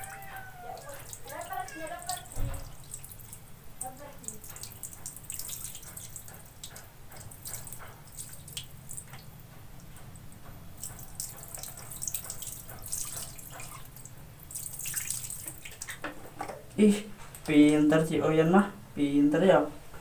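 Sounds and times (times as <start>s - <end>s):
water splashing into plastic basin: 0.0s - 9.1s, 10.8s - 16.6s.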